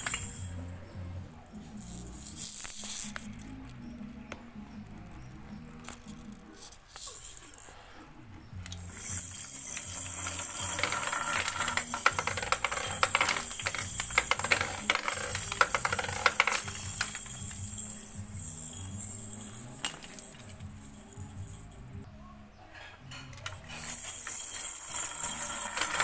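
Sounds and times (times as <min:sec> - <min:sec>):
plastic balls rattling down toy: 0:00.0 - 0:00.7, 0:01.7 - 0:03.8, 0:05.6 - 0:07.9, 0:08.7 - 0:21.8, 0:23.4 - 0:26.0.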